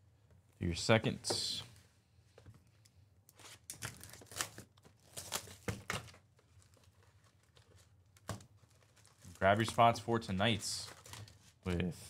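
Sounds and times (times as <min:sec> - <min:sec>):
plastic wrapping crinkling and tearing: 0:03.3 - 0:10.1, 0:10.8 - 0:11.6.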